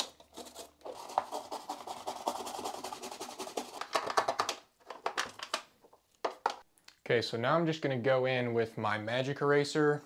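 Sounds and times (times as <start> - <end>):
toothbrush scrubbing plastic: 0.0 - 3.9.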